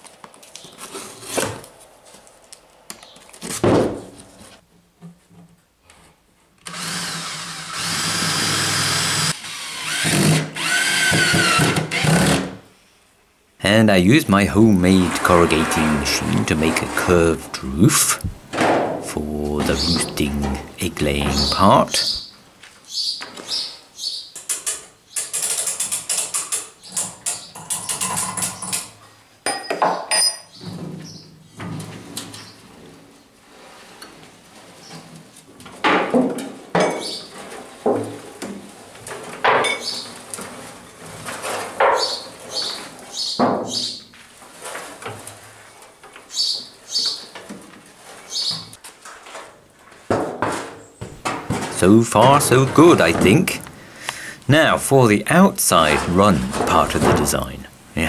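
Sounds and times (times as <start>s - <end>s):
cordless drill boring into plywood: 6.6s - 12.6s.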